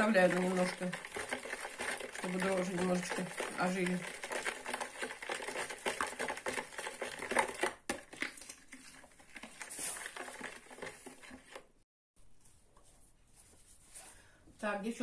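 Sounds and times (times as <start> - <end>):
spoon stirring in plastic bowl: 0.0 - 11.8.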